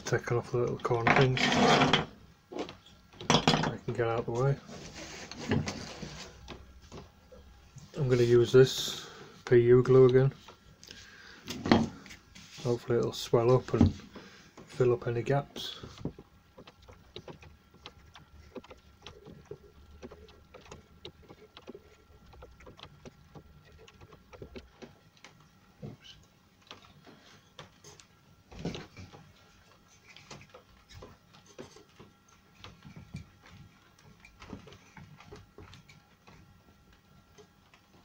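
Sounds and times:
plywood handling clicks and knocks: 0:00.6 - 0:04.3, 0:13.0 - 0:38.0.

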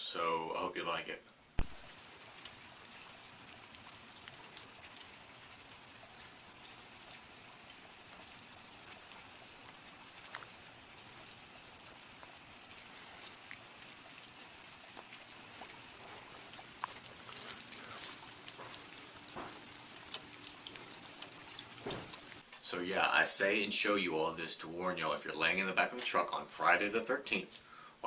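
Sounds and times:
faint hiss: 0:00.0 - 0:28.0
night insects chirring: 0:01.6 - 0:23.6.

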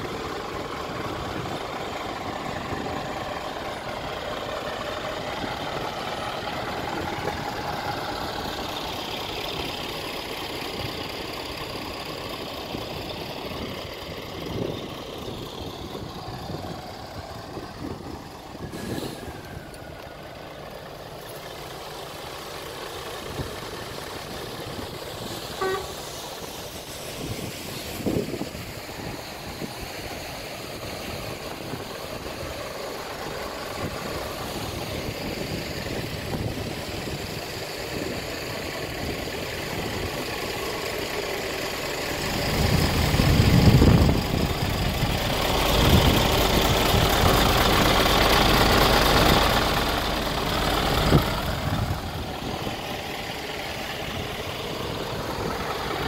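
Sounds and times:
diesel truck engine idling: 0:00.0 - 0:56.0
short pitched tone: 0:25.6 - 0:26.0.

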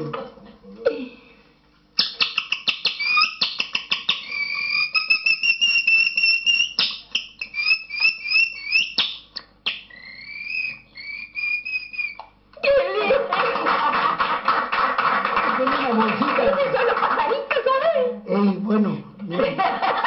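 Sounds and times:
man whistling like a canary: 0:02.0 - 0:12.2.

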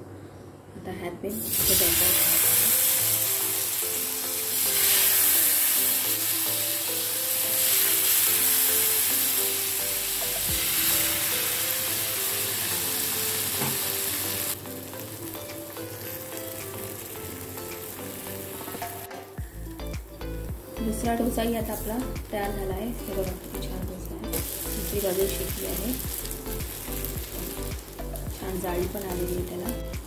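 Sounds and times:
batter sizzling on hot griddle: 0:01.5 - 0:19.1, 0:24.3 - 0:29.8.

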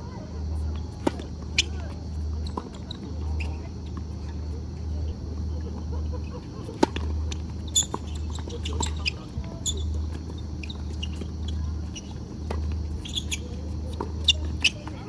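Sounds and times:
shoes squeaking on court: 0:00.1 - 0:15.0
racket hitting tennis ball: 0:00.9 - 0:01.7, 0:06.7 - 0:09.3.

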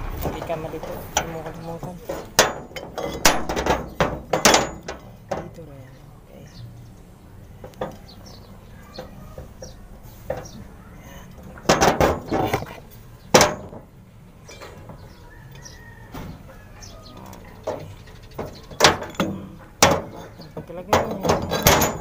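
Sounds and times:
metal canisters knocking together: 0:00.1 - 0:05.6, 0:11.4 - 0:12.7, 0:13.3 - 0:13.9, 0:17.6 - 0:22.0
light handling noise: 0:07.4 - 0:13.9.

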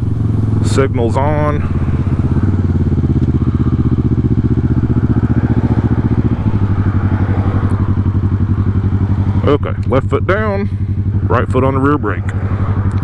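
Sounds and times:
motorcycle engine running: 0:00.0 - 0:13.0.

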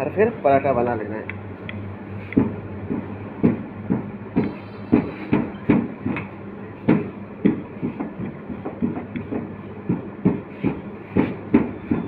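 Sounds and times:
rolling pin knocking on board: 0:02.4 - 0:06.3, 0:06.9 - 0:12.0.

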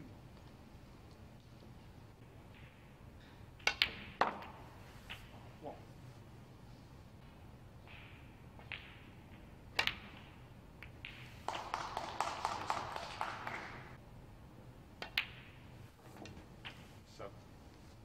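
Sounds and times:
snooker balls clicking: 0:00.4 - 0:05.8, 0:07.2 - 0:14.0, 0:15.0 - 0:16.9
cue striking ball: 0:03.6 - 0:04.6, 0:09.8 - 0:13.7
crowd applause: 0:11.5 - 0:14.0.

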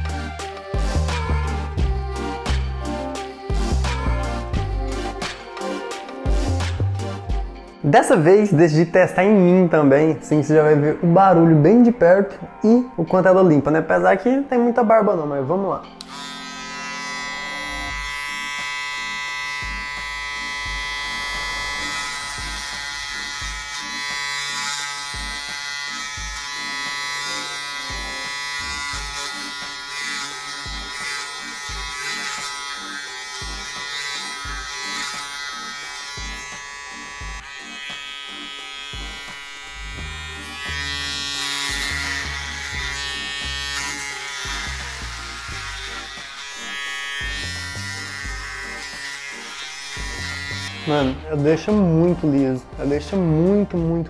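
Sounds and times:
background music with a beat: 0:00.0 - 0:08.0
electric shaver buzzing: 0:00.0 - 0:09.5, 0:15.9 - 0:53.3.

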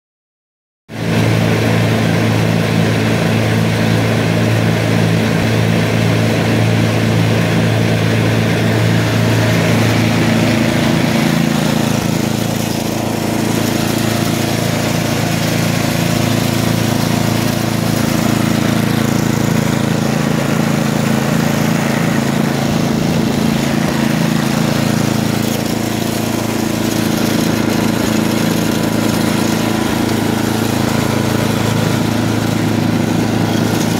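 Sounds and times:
snowblower engine running: 0:00.9 - 0:33.9.

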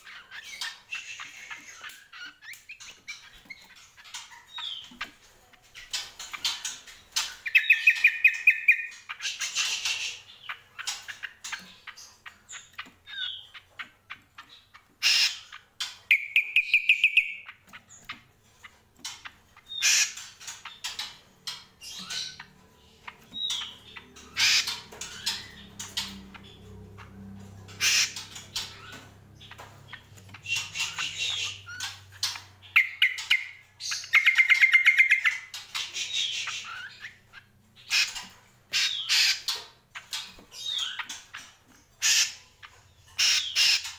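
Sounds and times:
bird chips and squawks: 0:14.5 - 0:17.4, 0:18.6 - 0:21.1, 0:23.4 - 0:26.6, 0:27.6 - 0:41.4, 0:42.0 - 0:42.5, 0:43.1 - 0:43.9.

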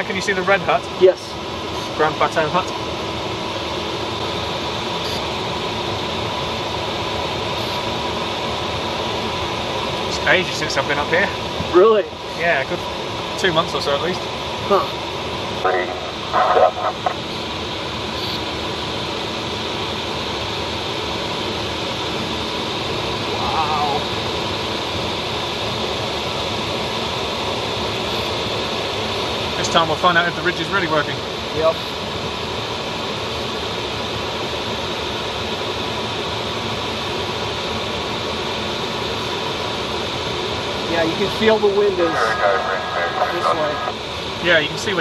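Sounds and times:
airflow hissing around cockpit: 0:38.8 - 0:45.0.

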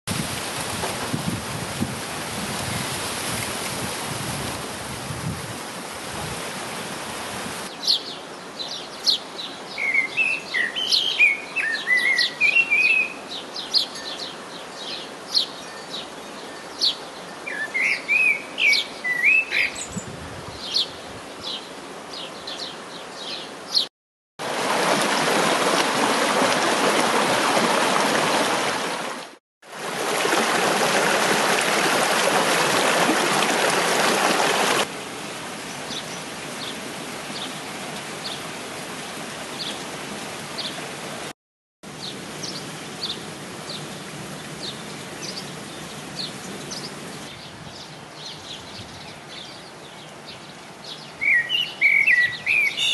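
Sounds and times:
stream rushing over rocks: 0:00.1 - 0:15.4, 0:24.4 - 0:41.3
songbirds singing: 0:07.7 - 0:23.9, 0:41.9 - 0:52.9.

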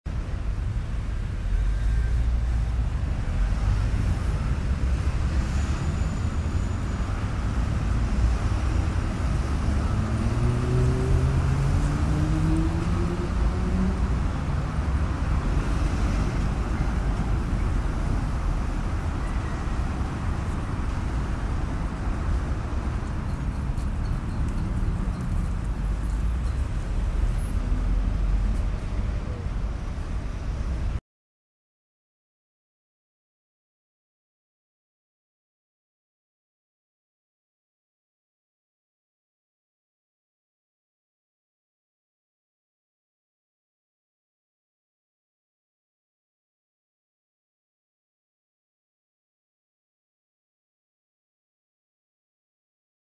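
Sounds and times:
city traffic rumble: 0:00.1 - 0:31.0.

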